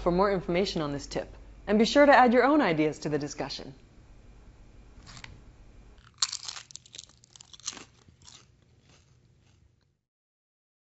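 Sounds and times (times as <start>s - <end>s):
potato chip crunching: 5.0s - 5.4s, 6.0s - 9.9s.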